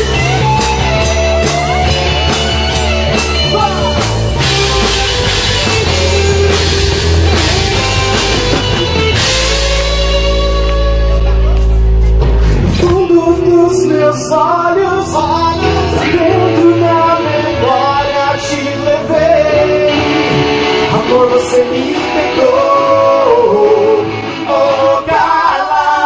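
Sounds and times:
live band playing: 0.0s - 26.0s
man singing into microphone: 12.6s - 26.0s.

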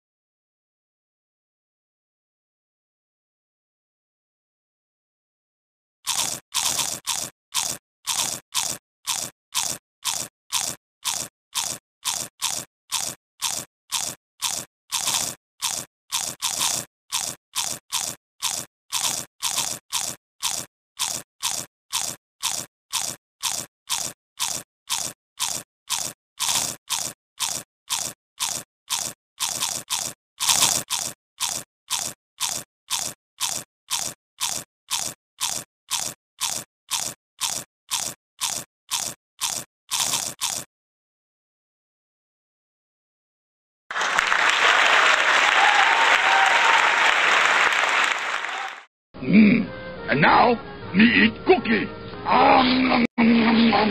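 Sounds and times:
crunchy biting: 6.1s - 40.7s.

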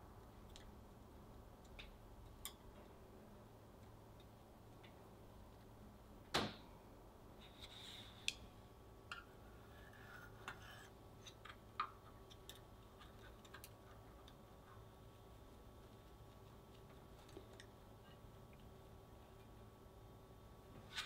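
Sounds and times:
short scrape: 7.4s - 8.3s.

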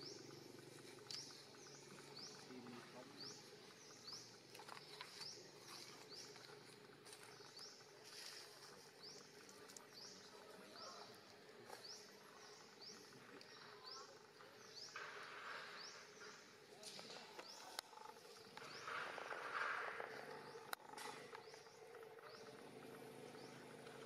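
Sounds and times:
faint ticks: 0.0s - 2.8s.

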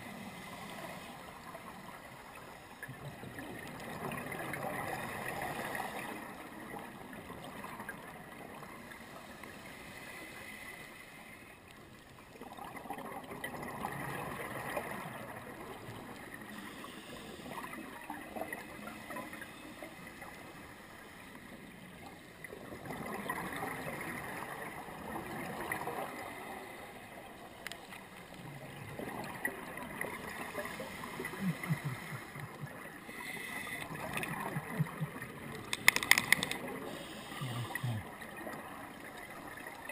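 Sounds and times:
scuba regulator bubbles gurgling: 0.0s - 39.9s.

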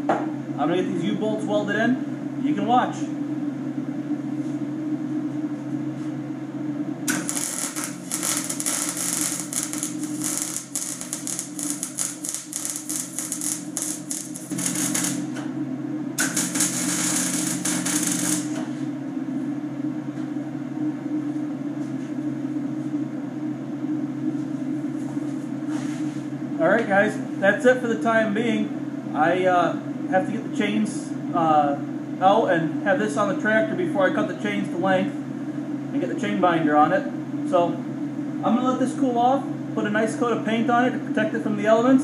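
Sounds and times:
steady low hum: 0.0s - 41.8s
welding arc crackling: 7.1s - 15.5s, 16.2s - 18.8s.

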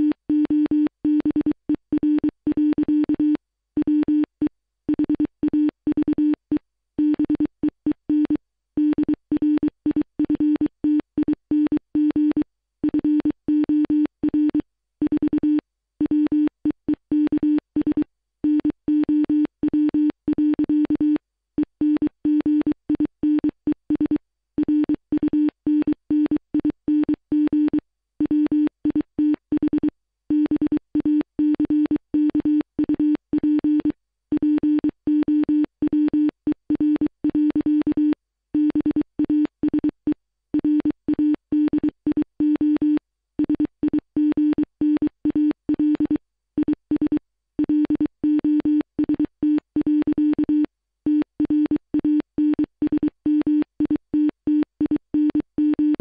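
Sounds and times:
morse code beeps: 21.8s - 40.0s, 40.6s - 56.0s.

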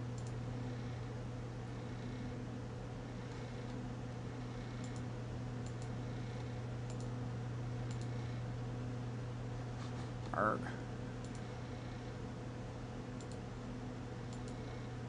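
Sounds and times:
steady low hum: 0.0s - 15.0s
computer mouse clicks: 0.2s - 0.4s, 4.7s - 7.1s, 7.8s - 8.2s, 11.2s - 11.5s, 13.2s - 13.4s, 14.3s - 14.7s.

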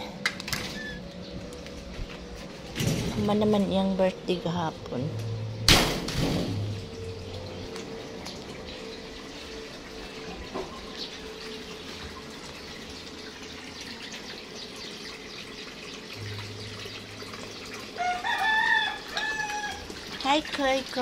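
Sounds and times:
water pouring into pond: 6.1s - 21.0s
rooster crowing: 18.0s - 19.9s.

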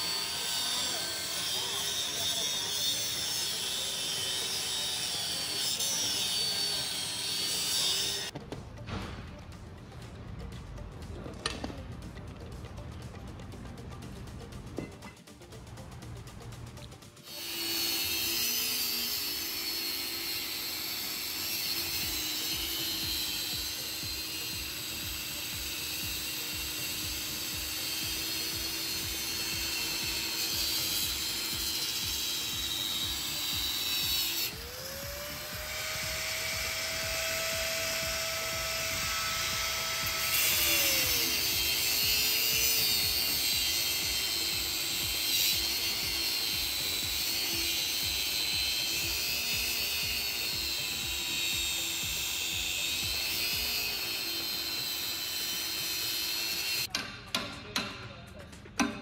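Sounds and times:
workshop machinery noise: 0.0s - 9.6s, 17.0s - 59.0s
motor whine: 20.0s - 56.9s.

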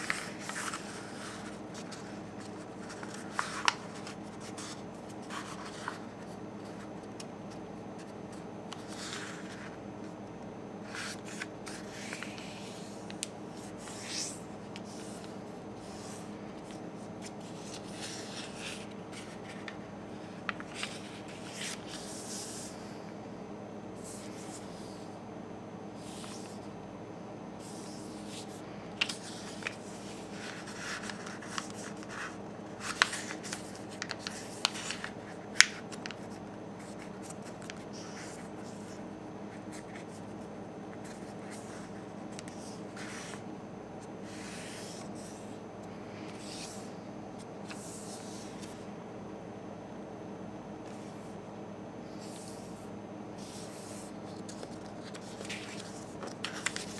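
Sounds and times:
paper rustling and folding: 0.0s - 10.1s, 10.8s - 22.7s, 27.6s - 39.0s, 39.6s - 43.4s, 53.4s - 56.9s
steady low hum: 0.0s - 56.9s
paper crackling clicks: 1.8s - 4.7s, 30.4s - 37.8s, 54.4s - 56.9s.

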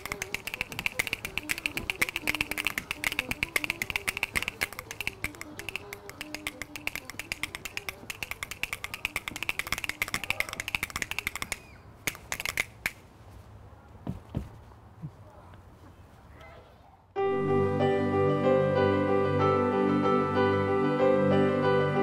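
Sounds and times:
rhythm bones clacking: 0.0s - 13.0s.

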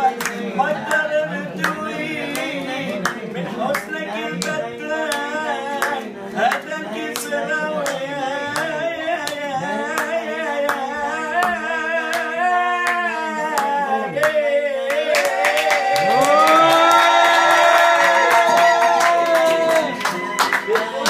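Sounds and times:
group singing: 0.0s - 21.0s
man singing lead: 0.0s - 21.0s
hand-clapping: 0.1s - 21.0s.

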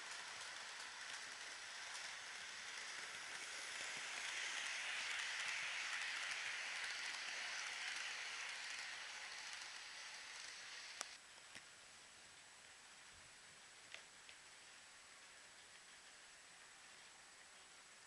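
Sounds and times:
model train motor whirr: 0.0s - 11.2s
wagon wheels rumbling on rails: 0.0s - 11.2s.

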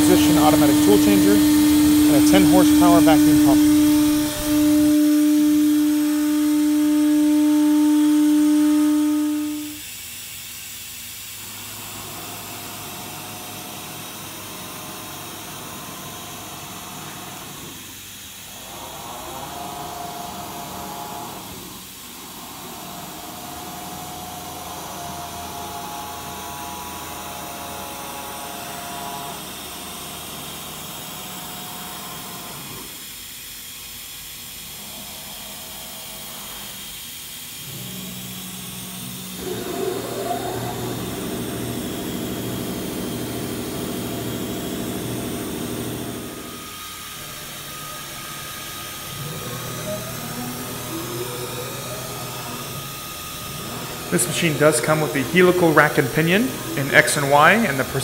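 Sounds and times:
drive motors whining: 0.0s - 9.8s, 37.6s - 58.0s
spindle and vacuum pump hissing: 0.0s - 58.0s.

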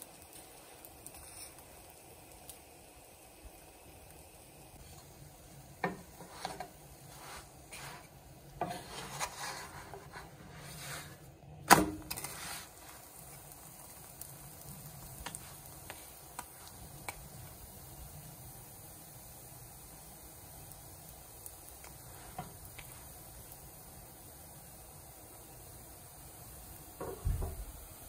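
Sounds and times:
spatula scraping frying pan: 1.1s - 1.7s, 5.8s - 11.3s, 12.1s - 13.0s.

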